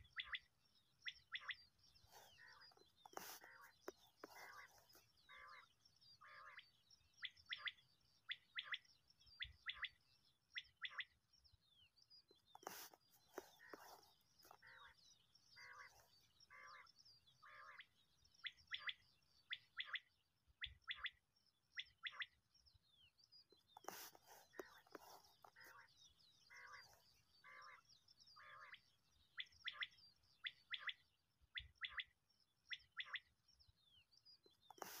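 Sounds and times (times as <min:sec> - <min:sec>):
quail calling: 0:01.1 - 0:06.6, 0:12.6 - 0:15.0, 0:23.8 - 0:25.9, 0:26.5 - 0:28.8.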